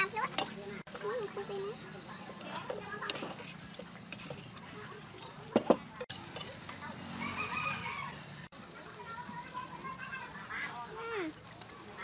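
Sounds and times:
rooster crowing: 7.2 - 8.2.

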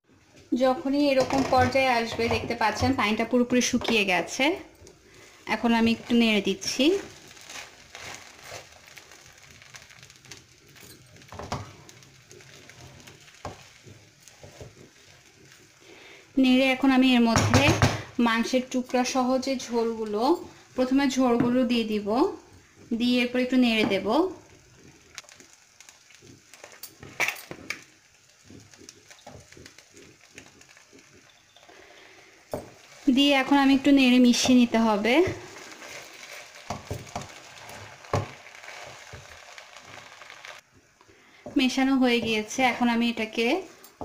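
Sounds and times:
spatula scraping rice in pan: 5.6 - 16.3, 22.6 - 40.6.

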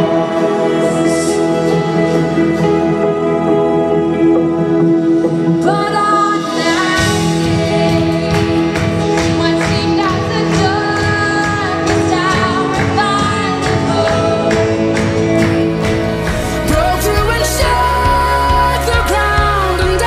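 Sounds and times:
worship band playing: 0.0 - 20.0
woman singing: 5.6 - 20.0.

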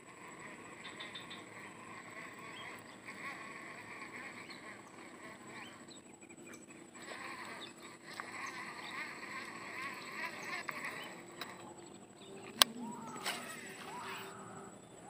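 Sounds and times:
chorus of wild animal calls: 0.0 - 15.0
short high animal calls: 12.7 - 14.8.

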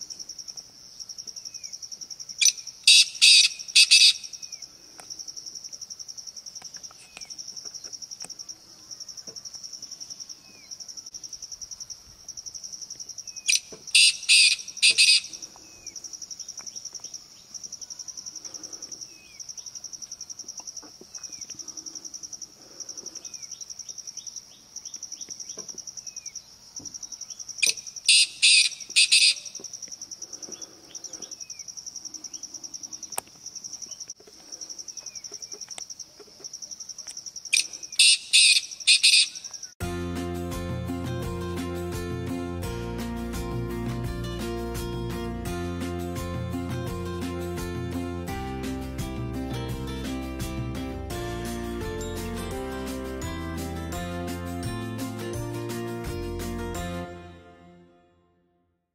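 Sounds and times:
francolin calling: 1.4 - 4.8, 13.2 - 19.9, 20.6 - 39.8.

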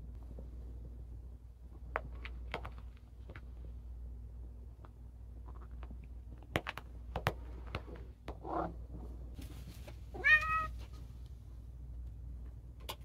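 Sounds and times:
cat meowing: 10.2 - 10.8.

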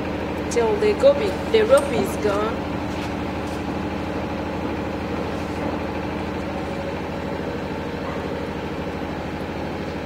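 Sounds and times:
engine humming: 0.0 - 10.0.

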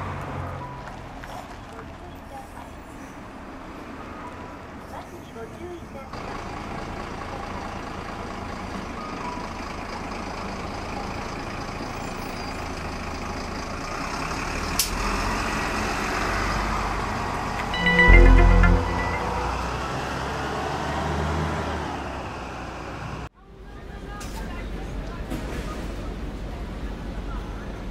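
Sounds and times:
bus engine running: 0.0 - 27.9
beeping tones: 17.7 - 20.0.

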